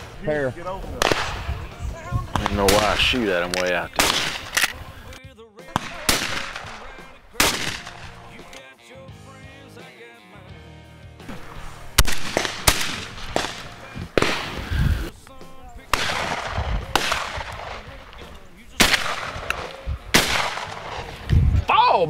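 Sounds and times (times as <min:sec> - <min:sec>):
shotgun shots echoing: 0:01.0 - 0:01.7, 0:02.3 - 0:04.9, 0:05.7 - 0:08.5, 0:11.3 - 0:14.8, 0:15.5 - 0:21.3
faint distant shots: 0:01.0 - 0:04.7, 0:05.7 - 0:08.3, 0:11.3 - 0:14.8, 0:15.6 - 0:21.2.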